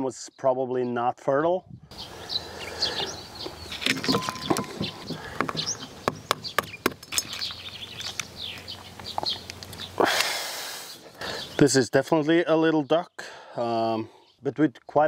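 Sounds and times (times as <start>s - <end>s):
birds chirping: 0.3s - 14.7s
eggshell cracking: 3.4s - 10.0s.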